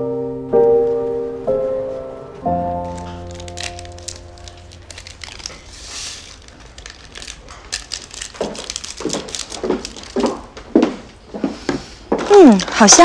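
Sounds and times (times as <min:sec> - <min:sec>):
soft piano music: 0:00.0 - 0:05.7
crinkling handling noise: 0:02.8 - 0:13.0.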